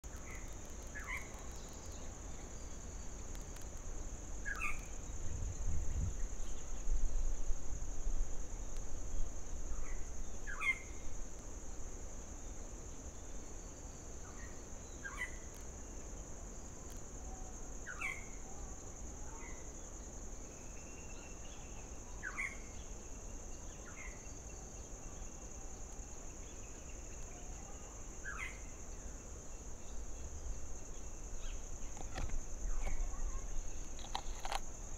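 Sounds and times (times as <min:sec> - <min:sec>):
insect drone: 0:00.0 - 0:34.9.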